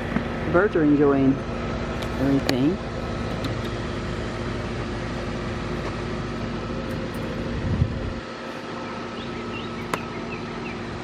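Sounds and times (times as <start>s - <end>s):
steady mechanical hum: 0.0s - 11.0s
low rumble: 7.0s - 8.3s.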